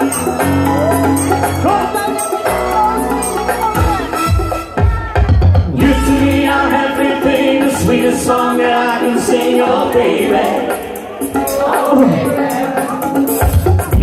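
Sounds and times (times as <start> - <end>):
backing track: 0.0 - 14.0
man singing into microphone: 5.7 - 13.0.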